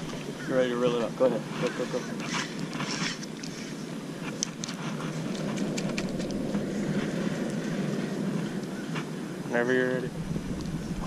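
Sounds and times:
cast net hauled from water: 1.1 - 8.0
steady low rumble: 3.4 - 11.0.

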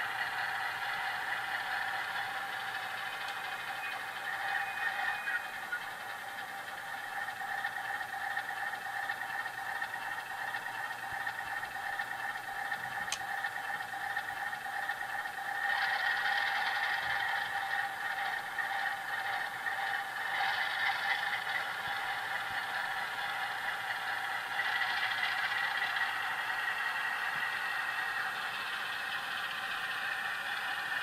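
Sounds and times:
thin model engine drone: 0.0 - 31.0.

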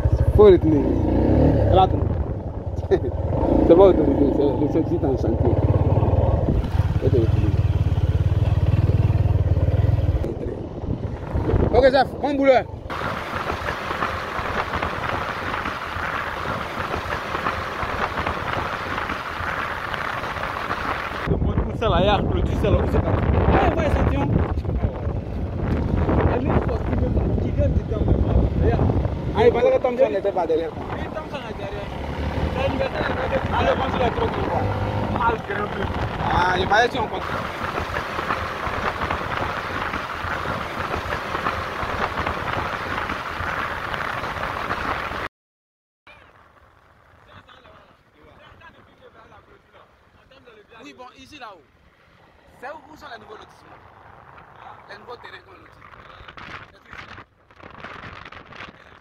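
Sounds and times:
handling noise rumble: 0.0 - 45.3
wind rushing on microphone: 0.0 - 45.3, 52.2 - 59.0.

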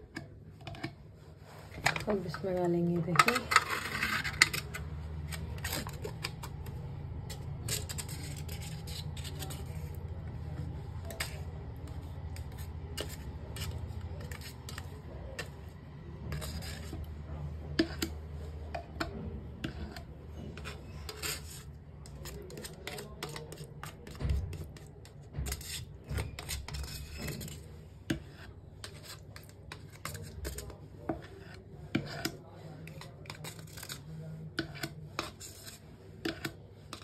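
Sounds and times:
knife scraping plastic pouch: 7.4 - 9.9, 33.3 - 34.0.

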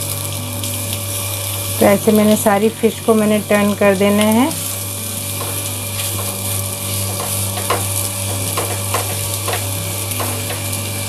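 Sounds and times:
fish sizzling in oil: 0.0 - 11.0
spatula scraping a pan: 4.7 - 10.9.

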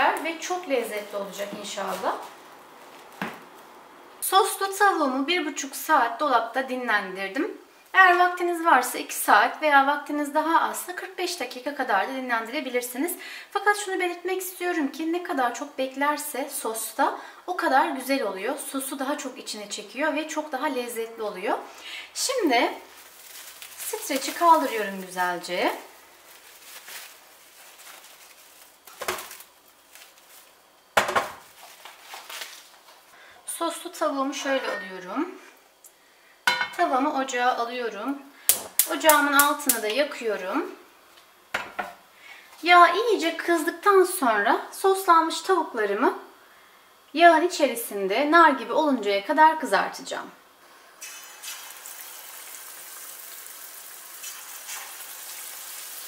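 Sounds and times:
cling film crinkling: 22.3 - 33.1
chicken sizzling in hot oil: 51.0 - 56.0.

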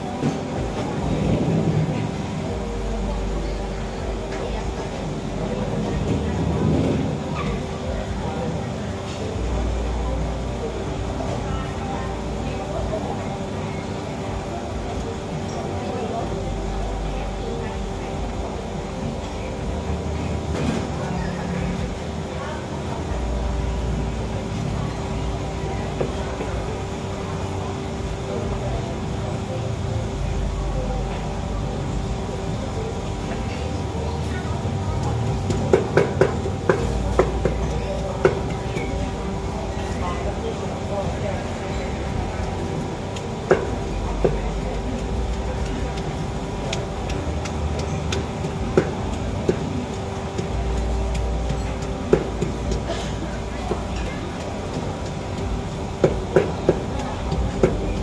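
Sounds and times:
food court background noise: 0.0 - 58.0
steady low hum: 0.0 - 58.0
pestle pounding in clay mortar: 35.1 - 39.9, 43.0 - 58.0.

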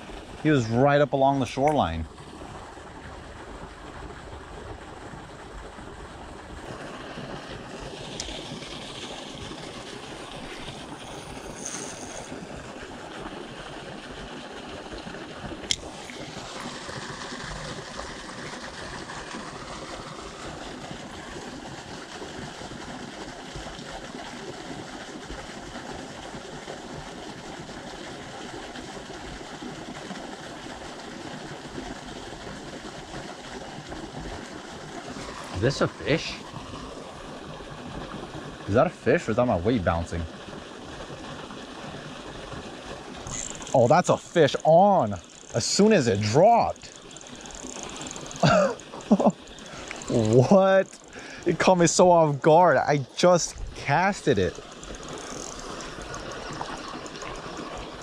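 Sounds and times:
river water rushing: 35.0 - 37.2, 43.1 - 58.0.

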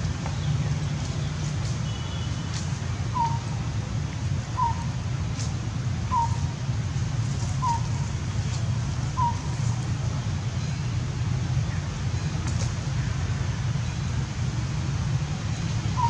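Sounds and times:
steady low rumble: 0.0 - 16.0
bird calling: 3.1 - 3.5, 4.6 - 4.9, 6.1 - 6.5, 7.6 - 8.1, 9.2 - 9.6.

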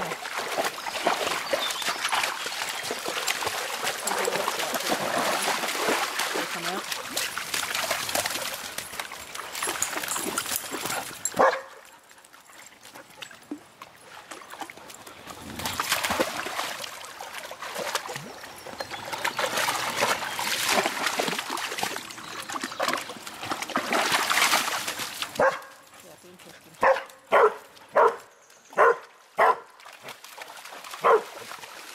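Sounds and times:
dogs splashing through water: 0.0 - 31.9
dog barking: 11.4 - 11.8, 25.4 - 25.7, 26.8 - 28.2, 28.8 - 29.7, 31.0 - 31.2.

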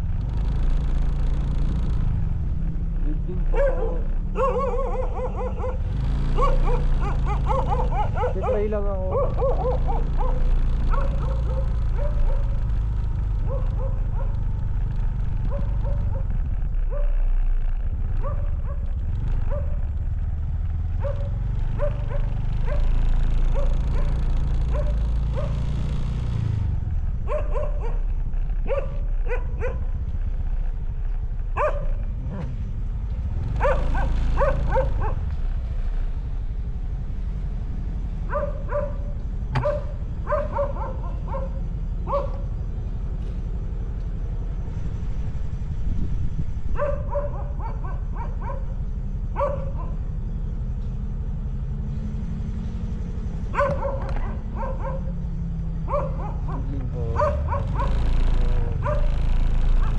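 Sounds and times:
low engine hum: 0.0 - 59.9
short high yelping calls: 3.4 - 5.8, 6.4 - 8.6.

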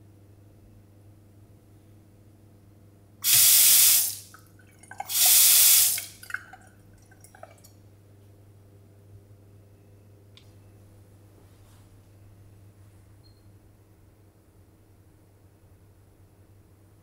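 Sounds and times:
tap water splashing into sink: 3.2 - 7.8
water drips: 3.2 - 7.8.

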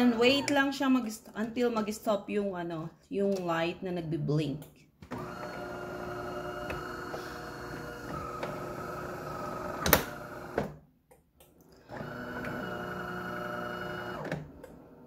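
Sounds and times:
espresso machine buzzing: 5.1 - 10.7, 11.8 - 14.5.

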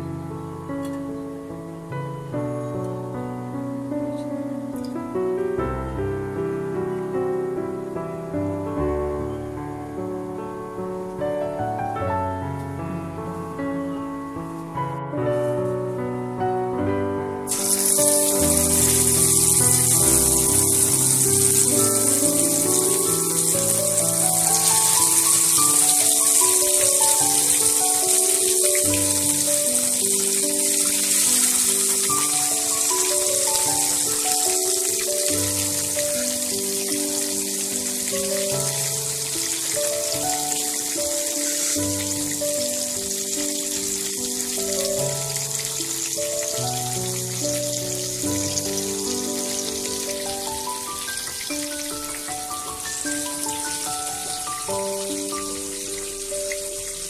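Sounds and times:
slow background music: 0.0 - 57.0
fish frying in hot oil: 17.5 - 57.0.

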